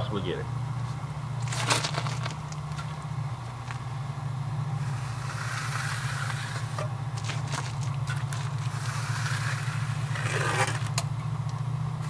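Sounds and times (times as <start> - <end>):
steady low hum: 0.0 - 12.0
tool scraping concrete: 4.8 - 11.0.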